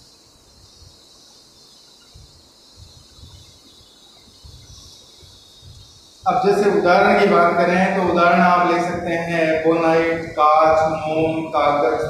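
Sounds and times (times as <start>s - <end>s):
steady high hiss: 0.0s - 12.0s
faint low rumbles: 5.6s - 12.0s.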